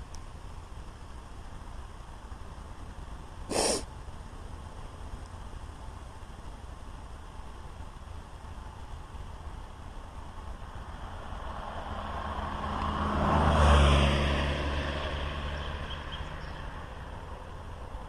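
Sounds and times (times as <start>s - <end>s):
vehicle driving past: 10.8s - 17.6s.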